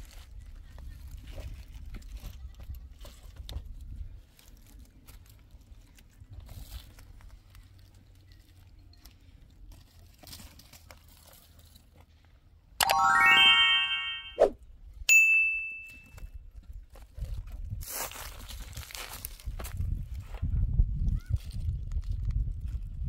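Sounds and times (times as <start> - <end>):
dry twigs scraping and crackling: 9.7 - 11.9, 17.9 - 19.6.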